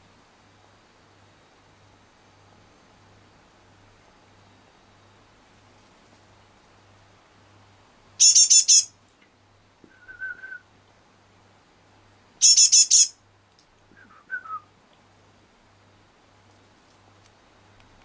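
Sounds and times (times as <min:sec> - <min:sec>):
bird calling high notes: 0:08.2 - 0:08.9, 0:12.4 - 0:13.1.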